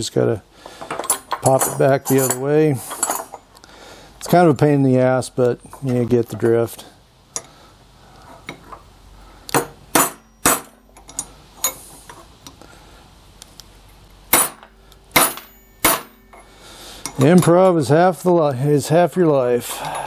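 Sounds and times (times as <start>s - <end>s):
hammer tapping on metal: 14.3s - 16.5s.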